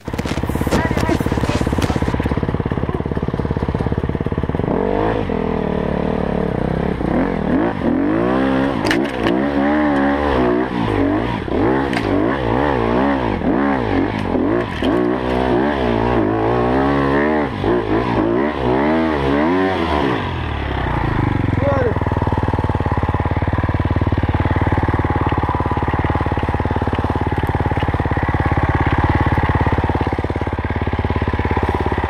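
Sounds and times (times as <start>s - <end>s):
bike knocking over ground: 0.0s - 2.4s
dirt bike engine revving: 0.0s - 32.0s.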